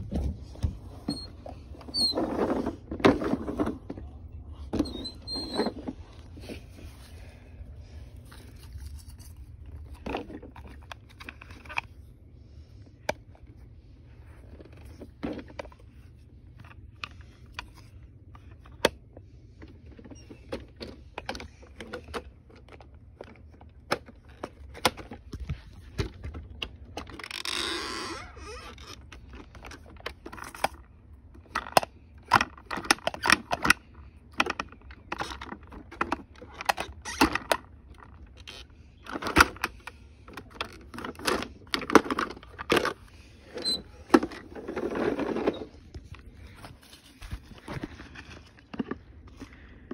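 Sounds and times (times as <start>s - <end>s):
rustling: 40.0s - 49.8s.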